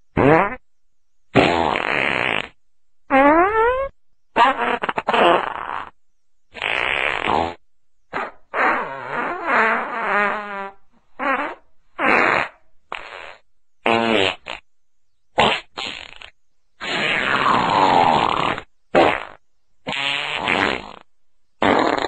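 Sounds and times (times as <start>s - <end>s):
fart sounds: 0.1s - 0.6s, 1.3s - 14.7s, 15.4s - 22.0s.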